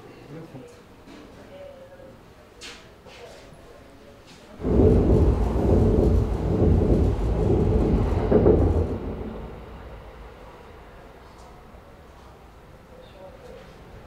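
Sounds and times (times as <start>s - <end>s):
train rumbling overhead: 4.6s - 14.0s.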